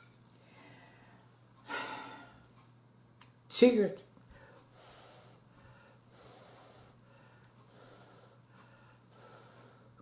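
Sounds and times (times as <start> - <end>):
steady low hum: 0.0 - 10.0
breathing through the nose: 4.3 - 10.0.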